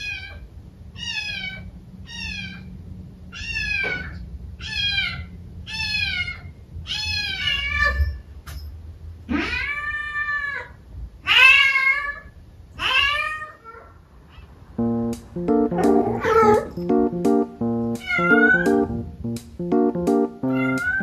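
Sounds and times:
kitten meowing: 0:18.0 - 0:18.7, 0:20.5 - 0:21.0.

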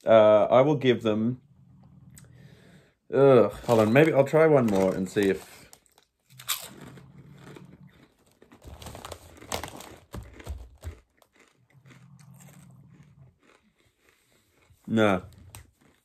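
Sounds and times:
faint low hum: 0:00.0 - 0:09.2
person crunching potato chip: 0:03.5 - 0:16.0.

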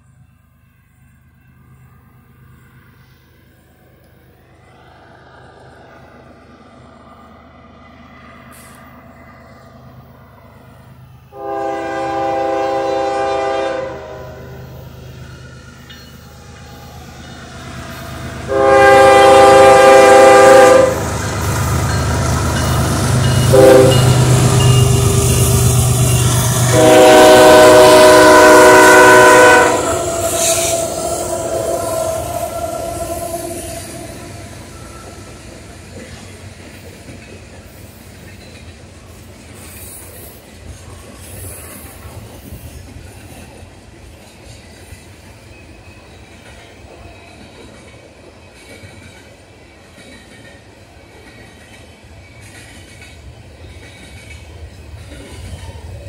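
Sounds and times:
diesel locomotive rumbling: 0:00.0 - 0:56.0
freight cars rolling on rails: 0:00.0 - 0:56.0
train horn blast: 0:11.3 - 0:14.8, 0:18.0 - 0:35.3.

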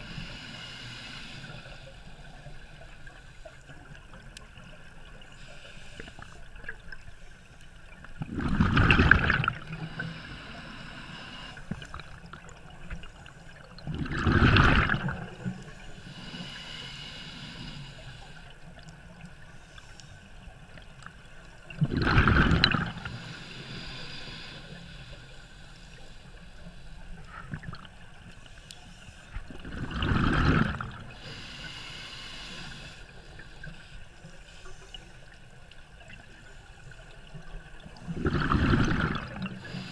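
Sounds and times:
soft regulator hiss: 0:00.0 - 0:08.1, 0:09.5 - 0:13.8, 0:15.2 - 0:21.7, 0:22.9 - 0:29.6, 0:30.9 - 0:38.2, 0:39.2 - 0:39.9
bubbly underwater exhalations: 0:08.2 - 0:09.8, 0:13.9 - 0:15.4, 0:21.8 - 0:23.0, 0:29.6 - 0:31.0, 0:38.2 - 0:39.6.

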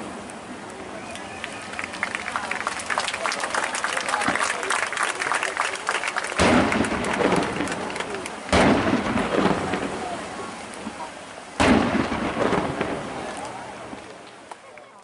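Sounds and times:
long rolling echo: 0:00.0 - 0:14.6
firework shells booming: 0:06.4 - 0:11.0, 0:11.6 - 0:14.5.

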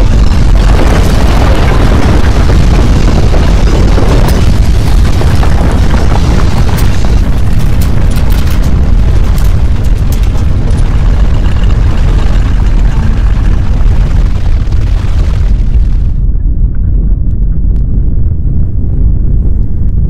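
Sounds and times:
sharp rattles and clatters: 0:00.0 - 0:15.3
deep earthquake rumble: 0:00.0 - 0:20.0.

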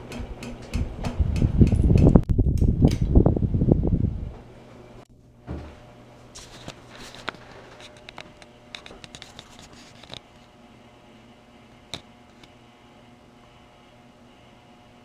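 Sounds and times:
ceiling fan motor hum: 0:00.0 - 0:15.0
soft thump: 0:05.5 - 0:05.8.

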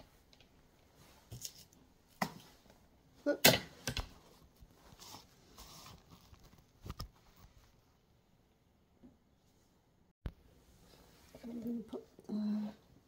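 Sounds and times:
soft rustle: 0:04.1 - 0:08.1, 0:10.6 - 0:12.2.

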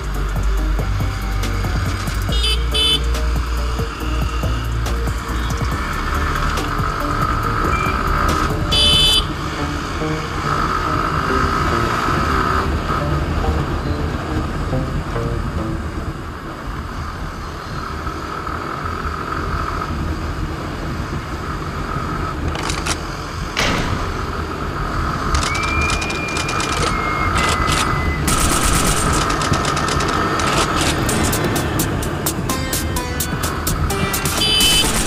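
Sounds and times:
motorcycle engine at speed: 0:00.0 - 0:13.6, 0:16.3 - 0:32.2
sharp cracks and pops: 0:22.5 - 0:24.4, 0:25.3 - 0:31.5.

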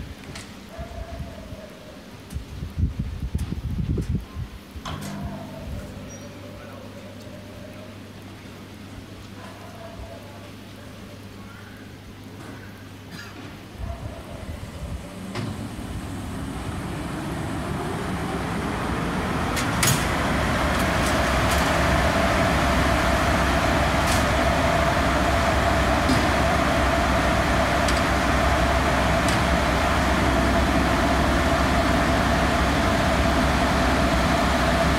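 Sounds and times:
locomotive blowers whirring: 0:14.6 - 0:34.9.

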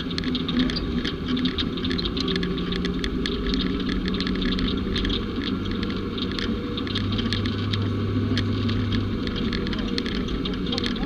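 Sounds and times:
clicks and rattles: 0:00.0 - 0:11.0
vehicle engine running: 0:00.0 - 0:11.0.

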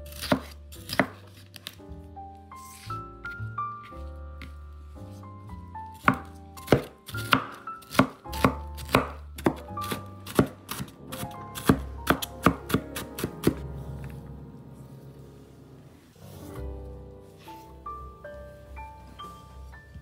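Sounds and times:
soft background music: 0:00.0 - 0:20.0
cleaver chopping on wooden board: 0:06.0 - 0:10.9, 0:11.6 - 0:13.6.

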